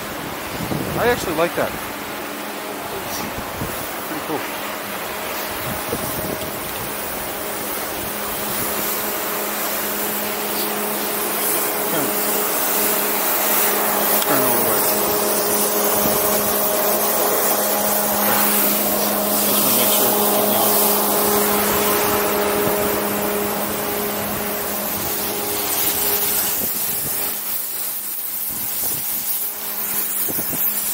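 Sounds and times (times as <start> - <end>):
wind rushing over microphone: 0.0 - 2.2, 2.8 - 4.1, 5.0 - 9.0, 15.8 - 19.1, 20.9 - 27.4, 28.5 - 29.3, 30.2 - 30.8
steady low hum: 0.0 - 30.9.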